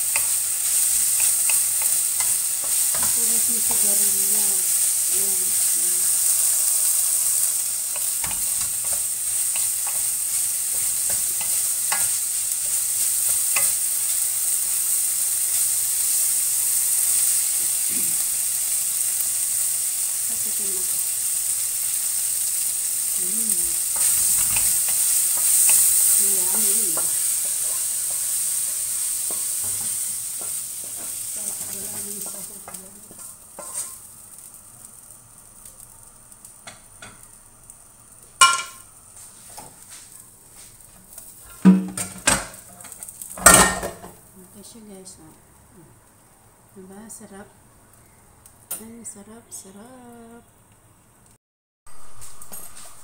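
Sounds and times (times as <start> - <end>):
vegetables sizzling in a wok: 0.0 - 53.0
wooden spatula scraping a pan: 23.9 - 34.0.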